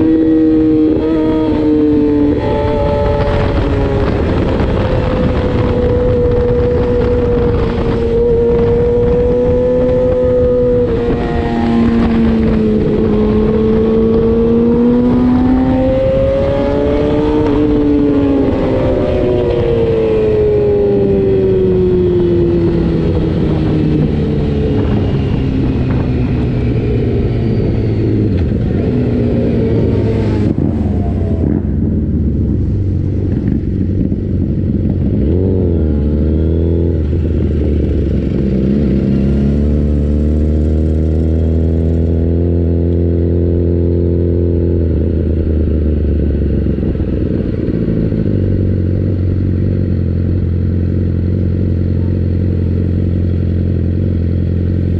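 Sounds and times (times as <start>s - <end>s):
wind rush: 0.0s - 49.4s
motorcycle engine decelerating: 0.0s - 54.9s
motorcycle throttle blips: 0.0s - 54.9s.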